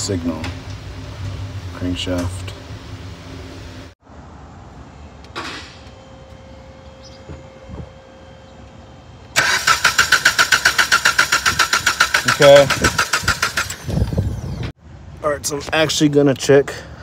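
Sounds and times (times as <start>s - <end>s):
engine cranking on starter: 9.4s - 14.7s.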